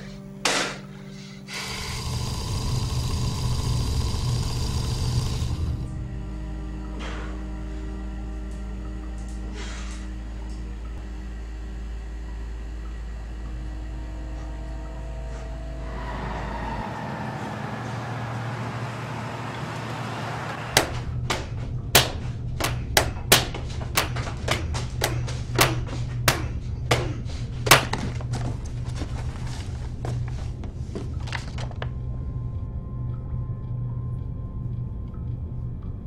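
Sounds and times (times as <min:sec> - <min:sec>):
sustained music tones: 0:00.0 - 0:36.0
sharp irregular knocks: 0:20.8 - 0:28.2.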